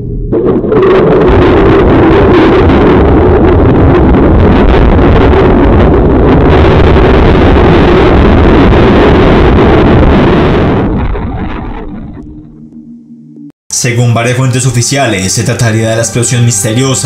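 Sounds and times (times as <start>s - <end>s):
crackly rumbling roar: 0.0s - 12.8s.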